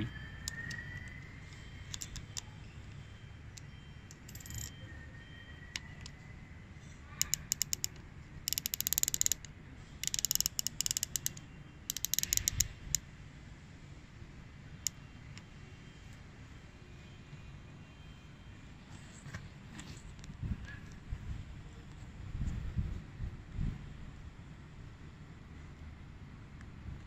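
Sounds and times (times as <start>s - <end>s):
scope turret clicking: 0.4s - 1.2s, 1.9s - 2.5s, 3.6s - 4.7s, 7.2s - 13.0s.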